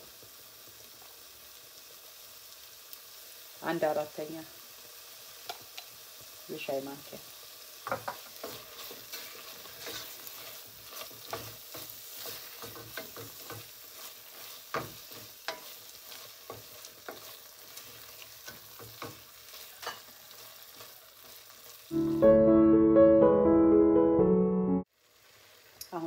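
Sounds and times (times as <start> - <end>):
frying sizzle: 0.0 - 23.0, 24.8 - 26.0
wooden spoon scraping a pan: 7.8 - 21.8
piano music: 21.9 - 24.9.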